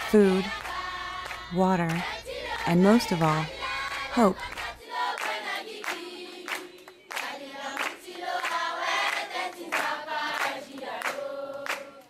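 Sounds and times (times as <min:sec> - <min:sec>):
hand claps: 0:00.5 - 0:02.7, 0:03.5 - 0:12.0
children singing in chorus: 0:03.4 - 0:12.0.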